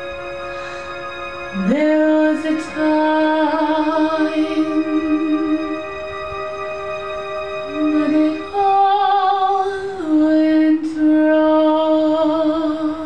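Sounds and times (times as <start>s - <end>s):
sustained accompaniment: 0.0s - 13.0s
woman singing a slow ballad: 1.5s - 5.8s, 7.7s - 13.0s.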